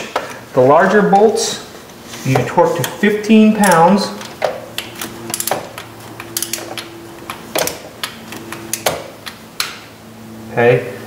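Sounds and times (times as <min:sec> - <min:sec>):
torque wrench ratcheting: 0:04.8 - 0:06.9.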